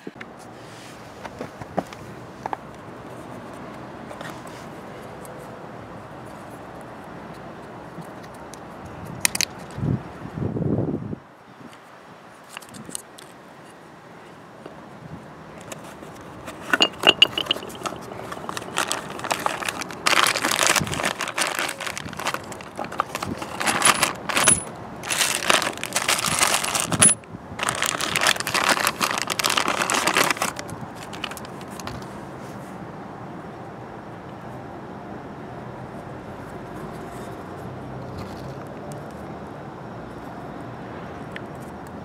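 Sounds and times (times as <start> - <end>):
nuts and washers clinking: 16.5 - 27.8
plastic bag crinkling: 16.8 - 31.9.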